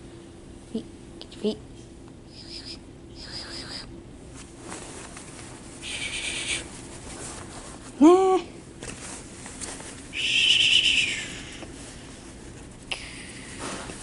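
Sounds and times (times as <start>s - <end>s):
blanket rustling: 6.7s - 8.0s.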